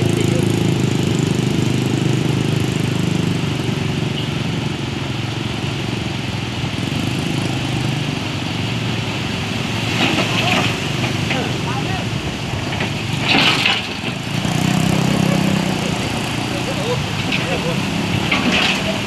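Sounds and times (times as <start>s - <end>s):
traffic noise: 0.0s - 19.0s
truck diesel engine: 0.0s - 19.0s
water washing: 4.6s - 19.0s.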